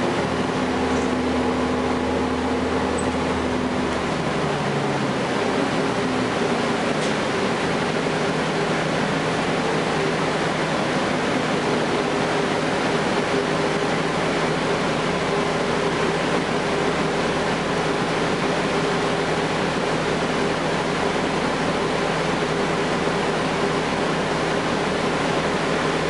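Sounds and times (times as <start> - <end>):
road noise: 0.0 - 13.4
bus diesel engine running: 0.0 - 26.0.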